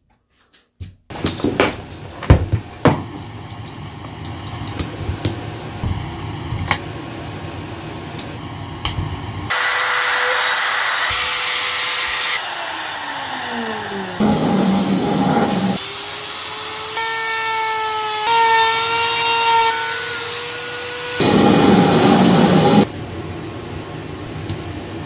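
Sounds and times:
router running loudly: 8.4 - 22.9
router winding down whine: 9.5 - 22.9.

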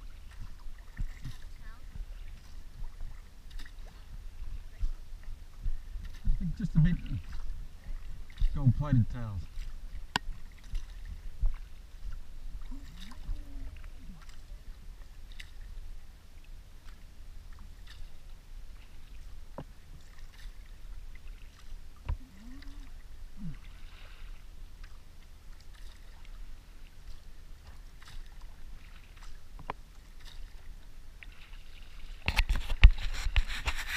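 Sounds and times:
wind rumble on microphone: 0.0 - 16.4
kayak paddle dipping and dripping: 0.0 - 33.9
water sloshing against hull: 0.0 - 33.9.

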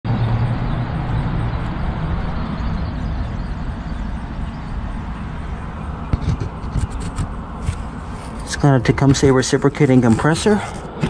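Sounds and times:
compressor humming: 0.1 - 11.0
fan air rushing: 0.1 - 11.0.

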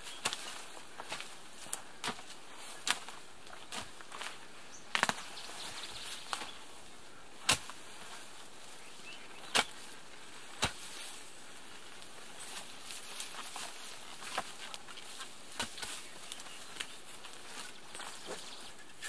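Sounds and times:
mattock chopping into soil: 0.1 - 5.3, 6.2 - 6.6, 7.4 - 8.2, 9.4 - 9.9, 10.5 - 11.2, 12.9 - 17.4.

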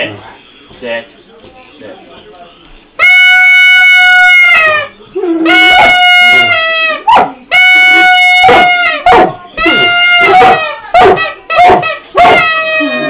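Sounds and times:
horn noisemaker toots: 3.0 - 13.0
dog howling: 8.0 - 13.0.

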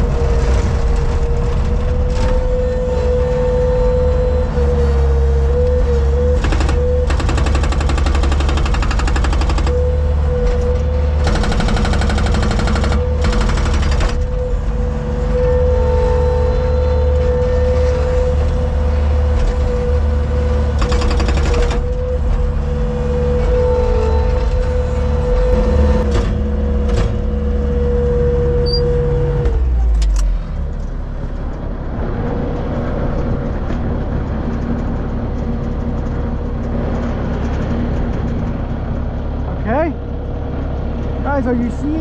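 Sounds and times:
engine whine: 0.0 - 42.0
loader engine running: 0.0 - 42.0
hydraulic breaker hammering concrete: 6.3 - 14.5, 20.6 - 22.2.

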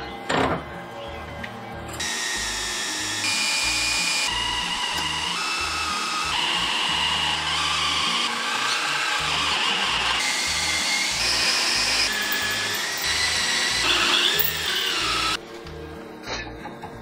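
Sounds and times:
background music: 0.0 - 17.0
cordless drill boring into metal: 2.0 - 15.4.

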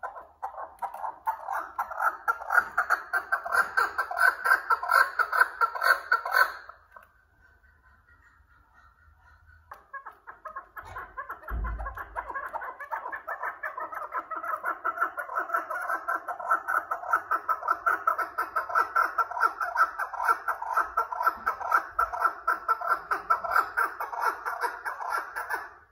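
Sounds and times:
partridges clucking: 0.0 - 25.6
low thump: 11.5 - 12.2.

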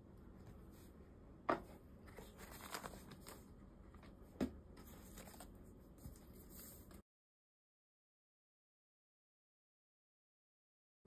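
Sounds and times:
packaging rustling: 2.1 - 3.5.

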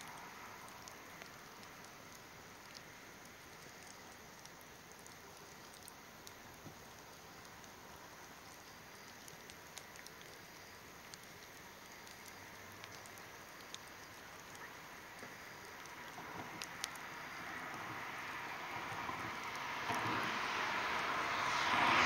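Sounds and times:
log fire crackling: 0.0 - 22.0
approaching vehicle: 16.2 - 22.0.

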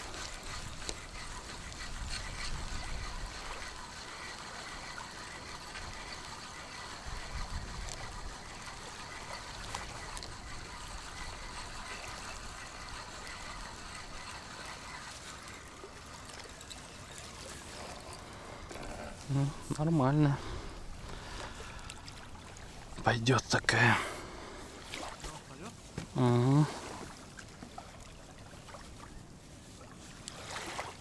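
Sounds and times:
wind rumbling on microphone: 0.0 - 3.8, 7.0 - 8.8
small waves lapping: 0.0 - 31.0.

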